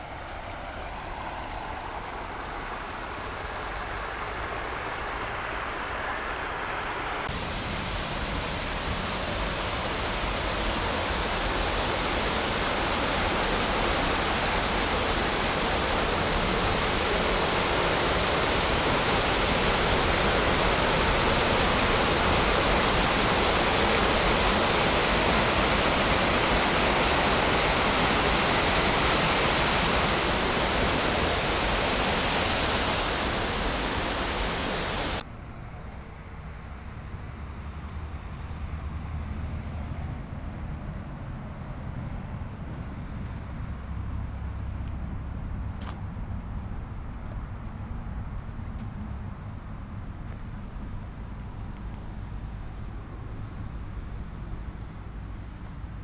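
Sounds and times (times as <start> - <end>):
waterfalls rushing over rocks: 2.1 - 35.2.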